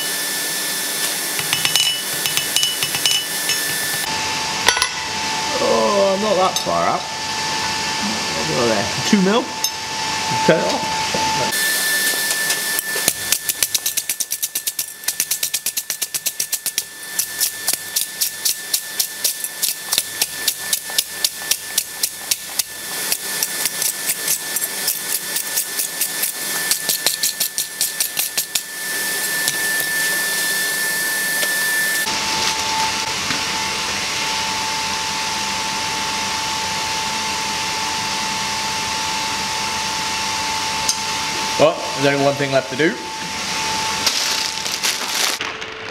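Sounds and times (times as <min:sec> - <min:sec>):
steady high hum: 0:01.0 - 0:35.8
hammer striking hot steel on anvil: 0:01.4 - 0:03.9, 0:04.6 - 0:05.0, 0:12.3 - 0:28.7.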